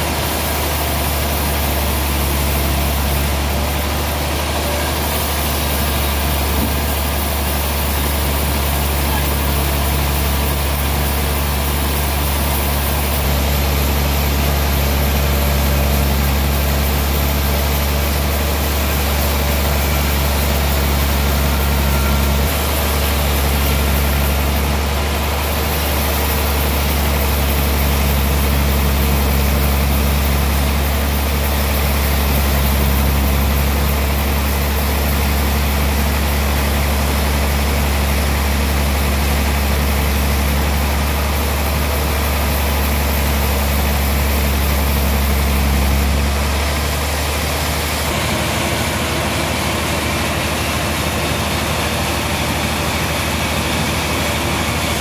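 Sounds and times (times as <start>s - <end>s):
band saw machinery humming: 0.0s - 55.0s.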